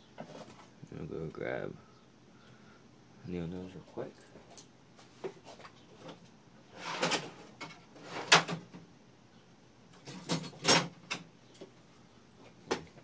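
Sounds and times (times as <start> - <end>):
tools scraping and clunking: 4.3 - 8.8.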